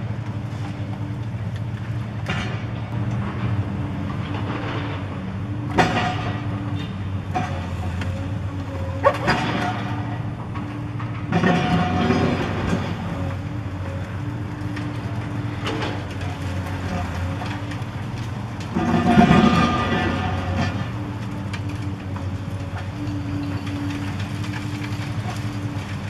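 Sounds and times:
excavator engine drone: 0.0 - 26.0
concrete crunching and breaking: 11.1 - 26.0
falling debris: 14.3 - 26.0.

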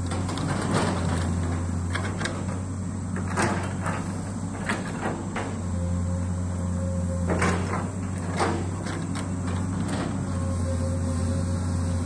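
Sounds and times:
excavator bucket clunks: 0.0 - 5.7, 7.2 - 10.3
excavator engine running: 0.0 - 12.0.

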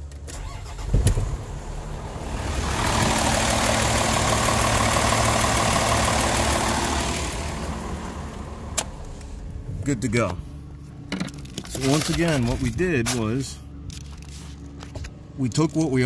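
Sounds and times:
truck diesel engine running: 0.5 - 11.4.

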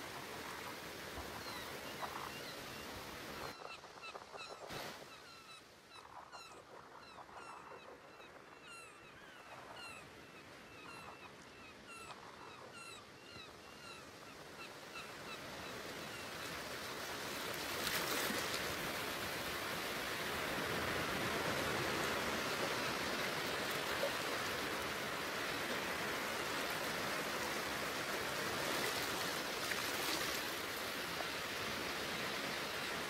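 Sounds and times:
rushing water-like noise: 0.0 - 3.6, 16.5 - 33.0.

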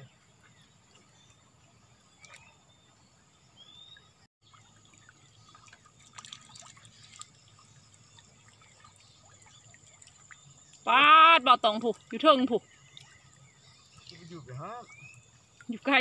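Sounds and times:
water dripping from a net: 2.2 - 2.5, 4.4 - 16.0.

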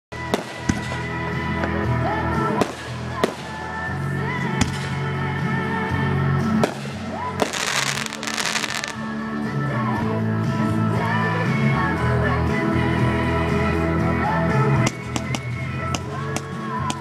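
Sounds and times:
music playing: 0.1 - 17.0
fireworks banging: 0.2 - 1.8, 2.6 - 3.7, 6.6 - 9.1.

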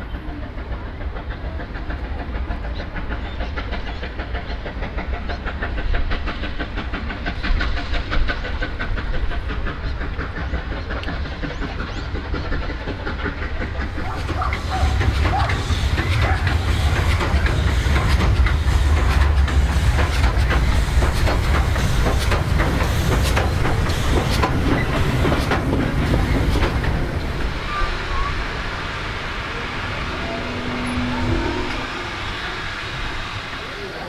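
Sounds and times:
steam train passing rumble: 0.0 - 34.0
wheels clattering over rail joints: 11.9 - 29.8.

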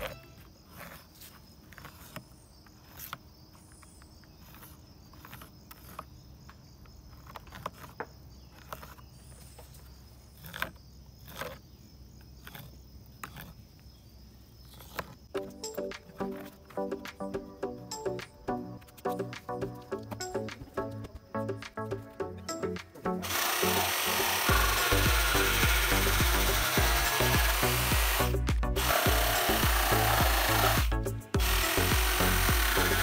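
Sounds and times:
pencil scraping on wood: 0.0 - 3.3, 4.3 - 6.2, 7.1 - 11.7, 12.3 - 13.7, 14.7 - 15.2
insect drone: 0.0 - 21.5, 23.2 - 33.0.

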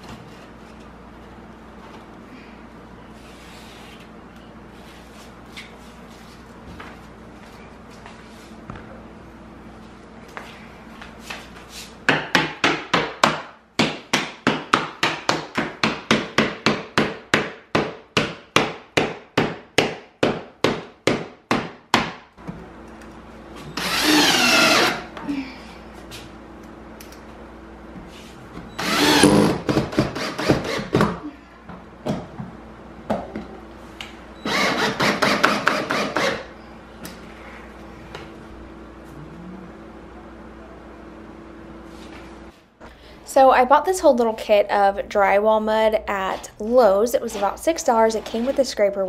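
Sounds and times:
cordless drill driving screws: 23.8 - 25.0, 28.8 - 29.6, 34.4 - 36.4.

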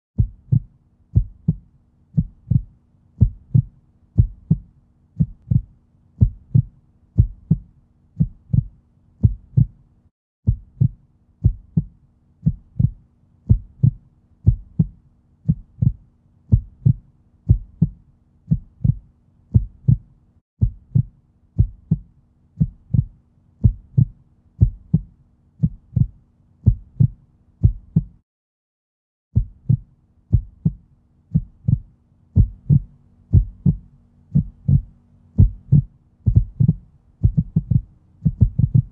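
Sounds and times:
faint steady hum: 29.4 - 38.9.

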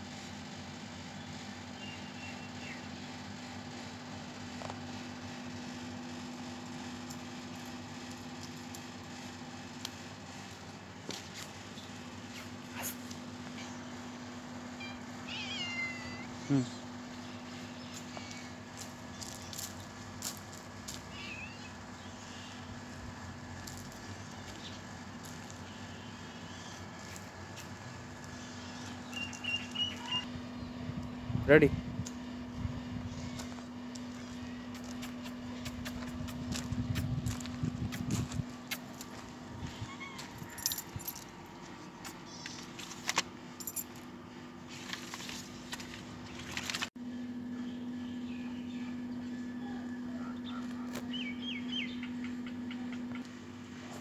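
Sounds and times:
steady low hum: 0.0 - 54.0
footsteps on gravel: 10.4 - 11.6, 17.9 - 21.1, 23.6 - 25.7, 33.3 - 43.2.

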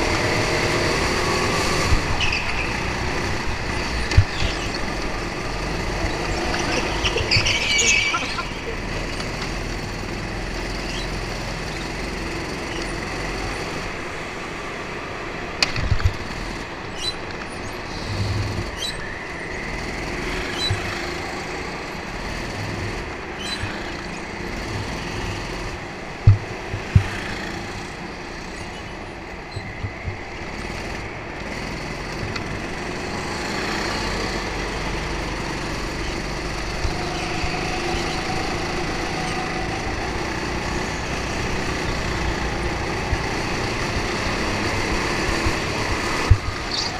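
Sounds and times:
go-kart engines racing: 0.0 - 46.9
sharp knocks: 26.2 - 27.2.

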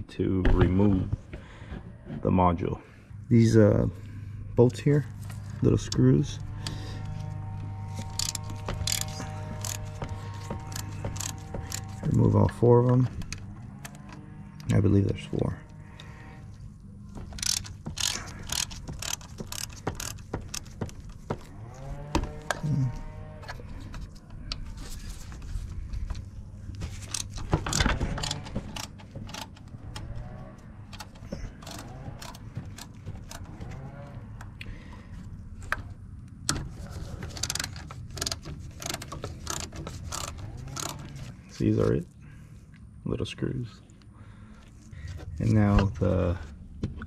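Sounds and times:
hand ratchet clicking: 7.9 - 12.1, 17.2 - 21.1, 27.0 - 30.1, 31.0 - 33.6, 37.3 - 41.1.

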